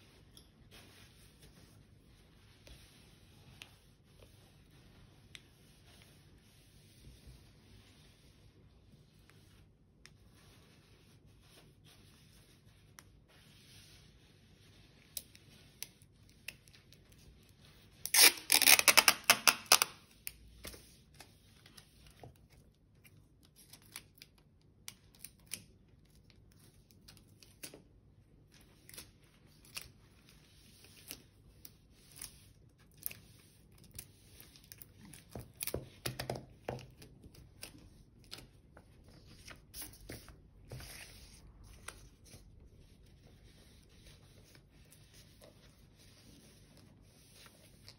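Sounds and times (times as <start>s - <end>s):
tape and paper rustling: 15.0s - 47.9s
sticky tape ripping off roll: 18.0s - 20.0s.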